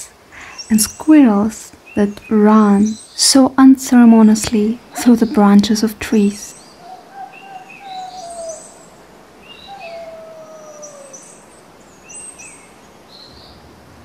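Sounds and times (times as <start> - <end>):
high bird chirps: 6.4 - 11.5
falling whistled bird calls: 6.5 - 12.6.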